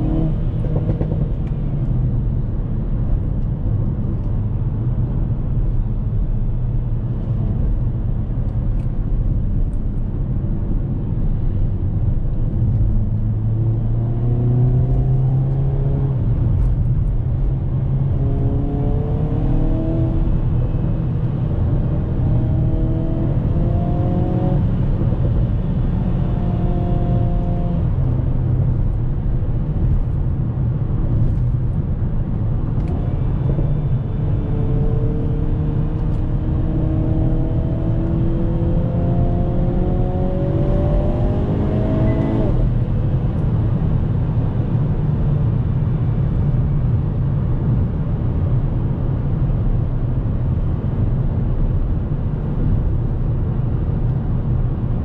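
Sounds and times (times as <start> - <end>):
low road rumble: 0.0 - 55.0.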